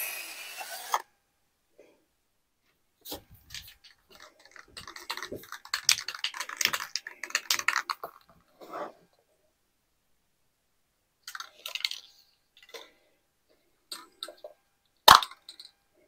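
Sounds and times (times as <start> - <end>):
spray can ball rattling: 3.0 - 8.2.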